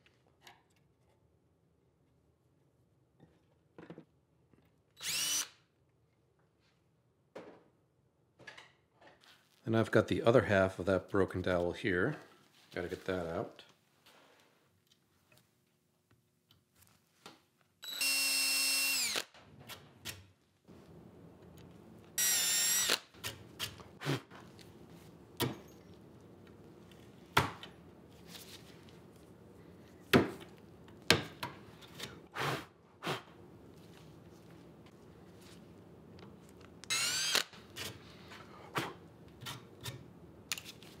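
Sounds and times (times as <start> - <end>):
electric drill boring wood: 5.0 - 5.5, 17.8 - 19.3, 22.2 - 23.0, 36.9 - 37.5.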